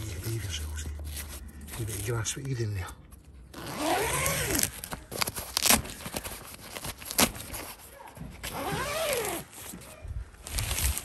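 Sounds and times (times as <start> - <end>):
tent fabric rasping: 3.6 - 4.7, 5.5 - 9.8.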